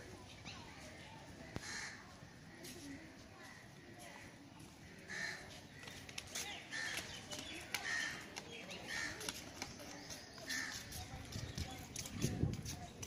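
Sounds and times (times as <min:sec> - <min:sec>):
faint crowd murmur: 0:00.0 - 0:13.0
crows cawing: 0:01.6 - 0:02.0, 0:05.0 - 0:05.9, 0:07.8 - 0:08.2.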